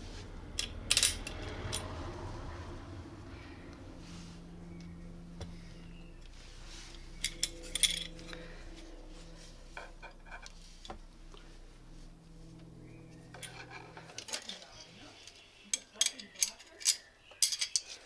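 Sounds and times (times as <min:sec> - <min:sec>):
steady low hum: 0:00.0 - 0:15.8
metal bracket clinking: 0:07.2 - 0:08.4.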